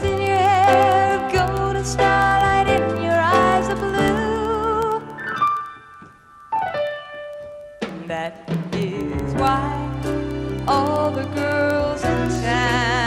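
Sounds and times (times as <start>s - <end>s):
pop ballad with piano and band: 7.8s - 13.0s.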